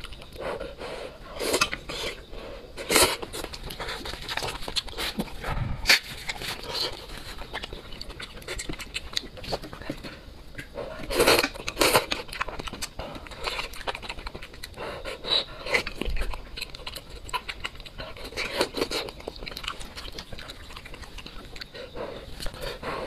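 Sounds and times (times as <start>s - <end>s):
smacking and chewing: 0.0s - 23.0s
open-mouthed panting: 21.6s - 23.0s.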